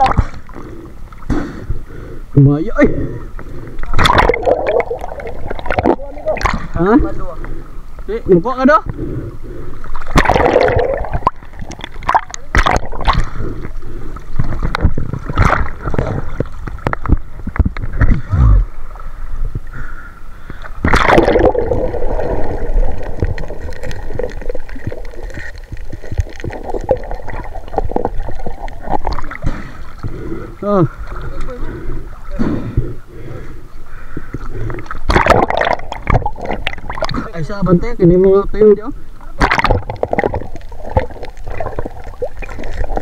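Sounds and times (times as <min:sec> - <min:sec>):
seawater gurgling and splashing: 0:00.0 - 0:07.8, 0:08.8 - 0:38.2, 0:39.0 - 0:43.0
surge of water: 0:03.8 - 0:06.9, 0:09.8 - 0:19.0, 0:20.6 - 0:32.6, 0:34.5 - 0:37.6, 0:39.2 - 0:43.0.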